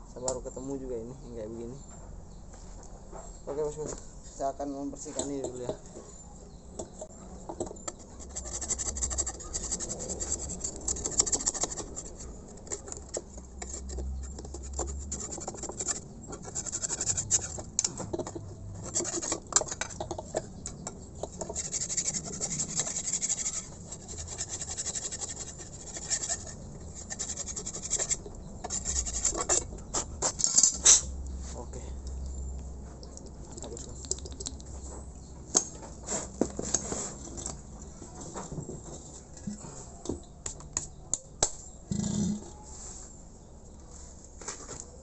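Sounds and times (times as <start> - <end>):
hand scraping metal: 7.6 - 31.2.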